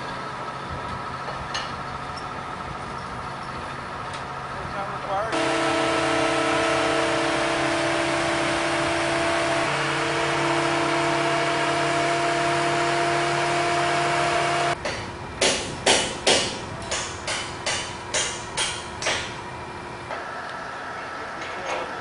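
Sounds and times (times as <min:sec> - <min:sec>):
heavy engine running: 0:00.0 - 0:22.0
hammer striking steel: 0:14.8 - 0:19.4.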